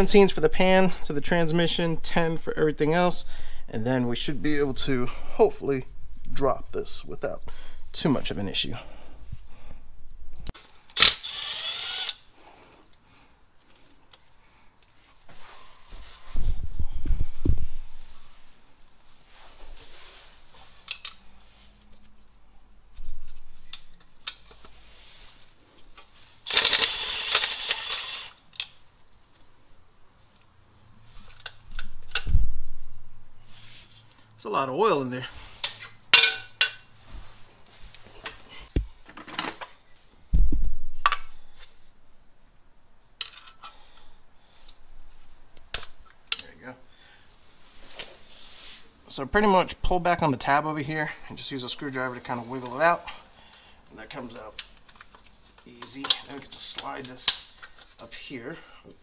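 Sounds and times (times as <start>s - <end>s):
rapid ratchet clicking: 26.5s - 28.4s.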